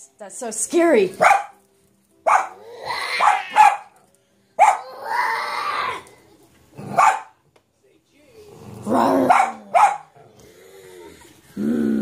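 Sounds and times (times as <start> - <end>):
toddler growling: 2.6 - 3.5, 4.8 - 6.2, 8.5 - 9.7, 10.3 - 12.0.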